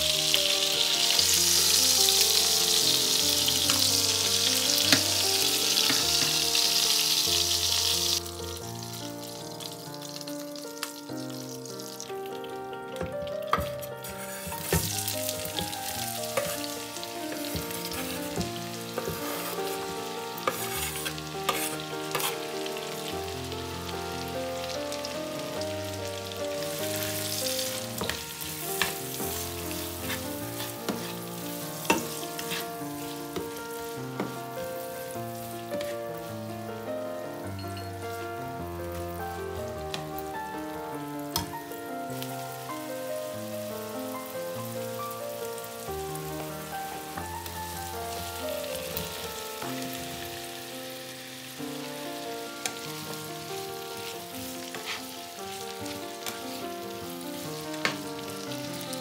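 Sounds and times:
butter sizzling in a frying pan: 0.0s - 59.0s
spatula tapping and scraping: 13.2s - 16.7s, 20.4s - 22.4s, 29.7s - 31.2s, 31.8s - 32.7s, 54.7s - 55.1s.

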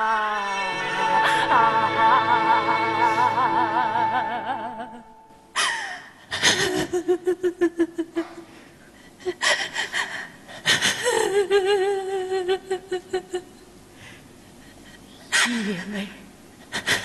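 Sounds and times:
woman sobbing: 3.0s - 8.4s, 9.0s - 13.6s, 14.7s - 17.0s.

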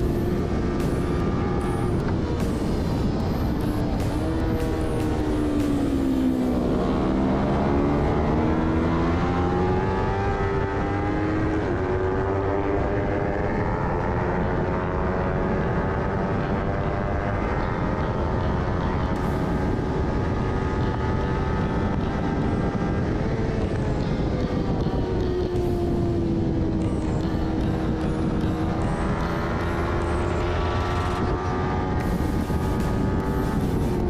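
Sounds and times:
heavy wind noise: 0.0s - 34.0s
motorcycle engine revving: 0.0s - 34.0s.

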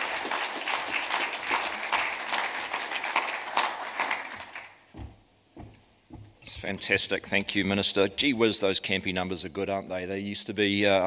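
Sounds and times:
audience applauding: 0.0s - 4.9s
soft thump: 4.9s - 6.7s.

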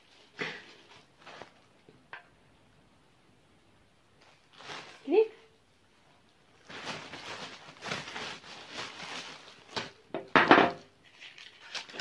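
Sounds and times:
plastic bag rustling: 0.0s - 1.9s, 4.2s - 5.4s, 6.3s - 10.3s, 11.0s - 12.0s.

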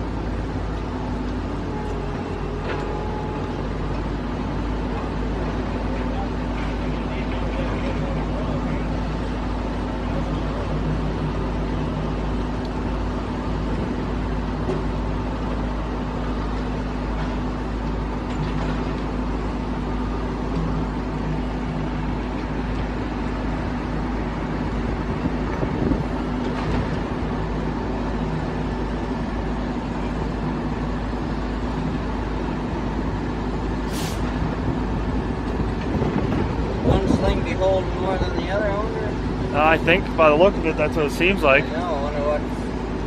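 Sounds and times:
heavy diesel engine running: 0.0s - 43.0s
short hiss: 33.9s - 34.3s.

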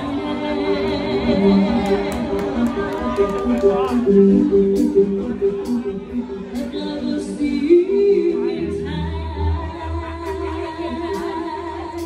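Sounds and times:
bass line: 0.0s - 12.0s
woman singing slow melody: 0.0s - 12.0s
live band music through pa: 1.8s - 9.4s.

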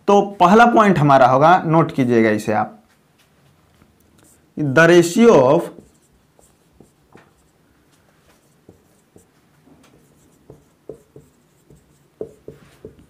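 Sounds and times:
marker pen on whiteboard: 2.9s - 13.0s.

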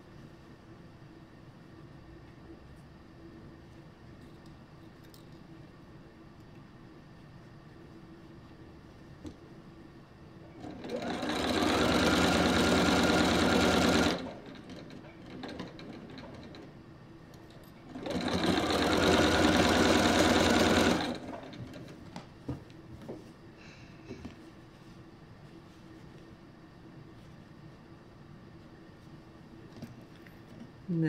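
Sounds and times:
sewing machine stitching: 10.6s - 16.7s, 17.9s - 22.0s.

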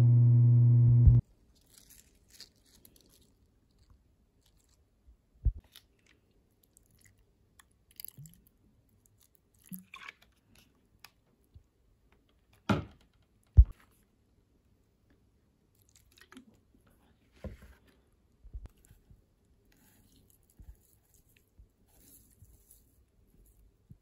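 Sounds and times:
crackly rustle: 1.3s - 4.9s.

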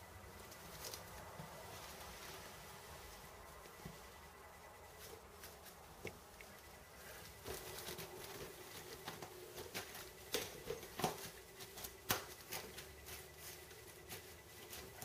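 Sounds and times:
kittens scrabbling on bedding: 7.1s - 15.0s.

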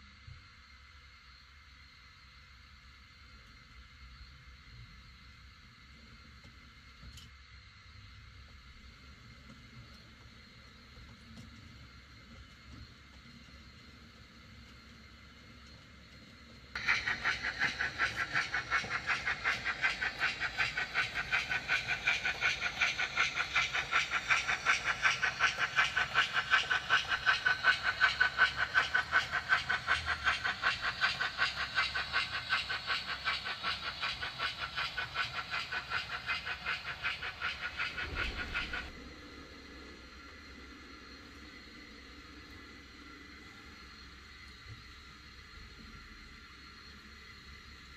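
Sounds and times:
steam locomotive chuffing: 13.7s - 45.4s.

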